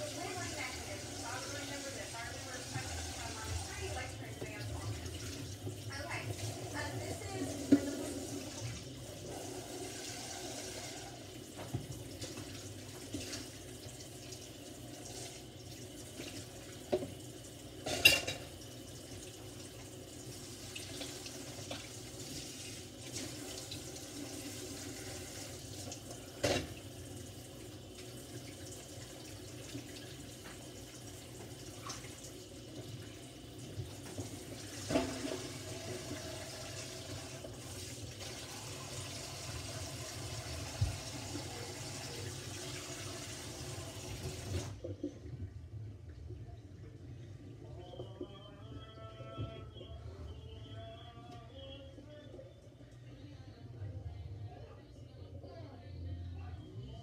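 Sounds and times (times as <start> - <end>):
faucet running into sink: 0.0 - 44.9.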